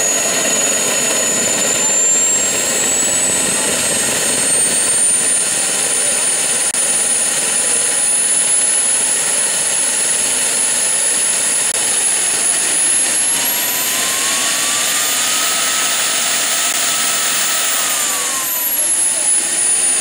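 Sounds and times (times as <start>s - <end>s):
jet turbine whine: 0.0s - 20.0s.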